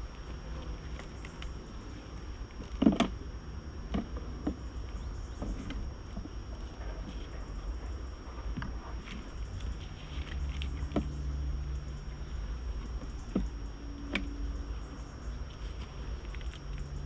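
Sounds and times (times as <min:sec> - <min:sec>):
low hum: 0:00.0 - 0:17.0
wood knocking against wood: 0:12.9 - 0:14.4.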